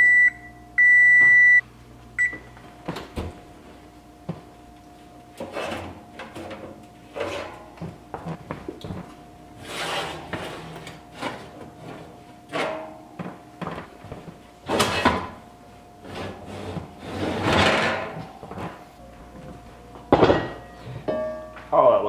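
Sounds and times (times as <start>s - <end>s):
metal pans scraping on oven rack: 5.4s - 7.8s, 9.6s - 13.0s, 14.6s - 15.4s, 16.0s - 18.8s.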